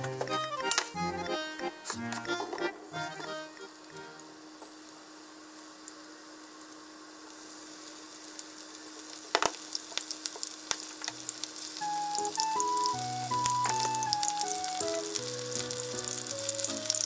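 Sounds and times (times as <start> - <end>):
food deep-frying in hot oil: 4.2 - 17.0
oil crackling: 5.6 - 17.0.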